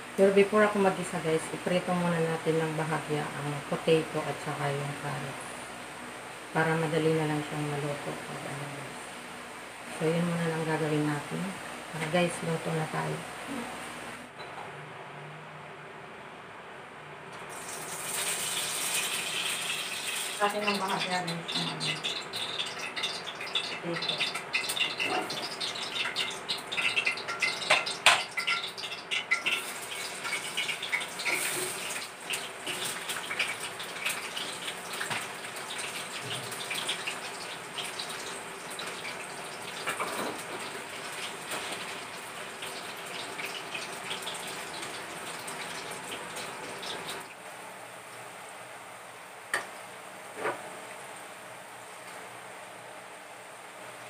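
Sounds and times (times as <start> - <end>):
potatoes sizzling in hot oil: 17.4 - 48.7.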